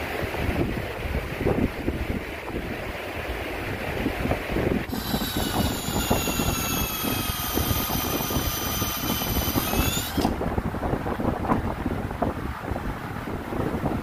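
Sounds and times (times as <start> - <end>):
cordless drill motor whining: 4.9 - 10.4.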